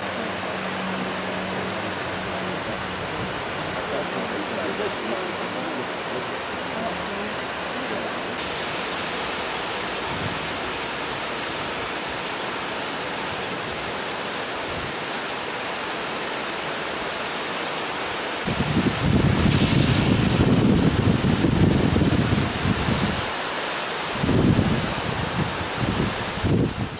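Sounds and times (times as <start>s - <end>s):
wind buffeting microphone: 10.0s - 10.6s, 18.4s - 23.3s, 24.1s - 26.9s.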